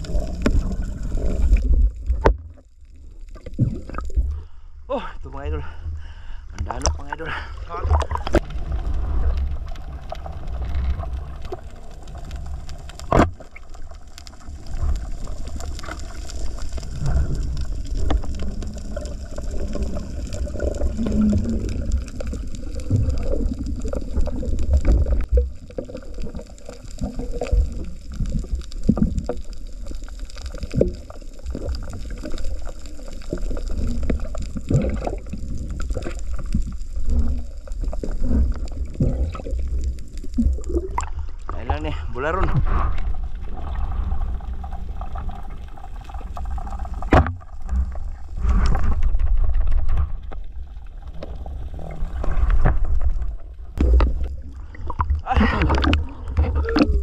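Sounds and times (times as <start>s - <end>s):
muffled underwater sloshing: 0.0s - 4.7s, 5.3s - 57.0s.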